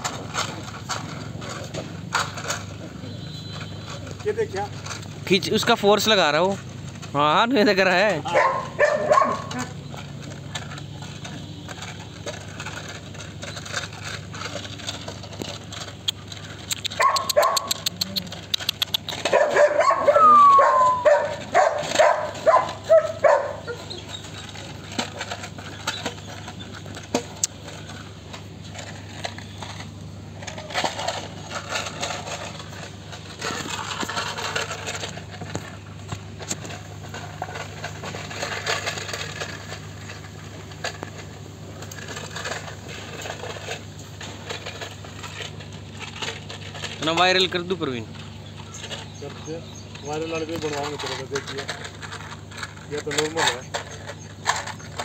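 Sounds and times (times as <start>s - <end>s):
puppy barking: 8.2s - 9.7s, 16.8s - 18.1s, 19.1s - 24.1s
puppy whining: 8.2s - 9.8s, 16.7s - 24.7s.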